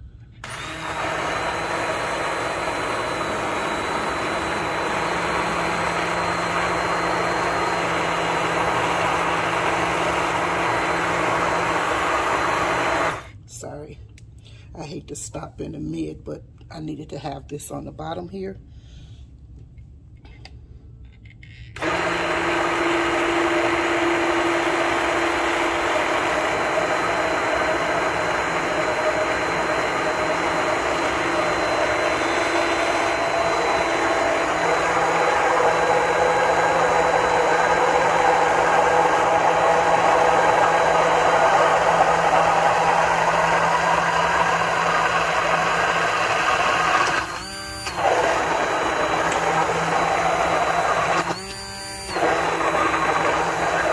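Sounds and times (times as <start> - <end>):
immersion blender running in glass jar: 0.4 - 13.3, 21.8 - 53.9.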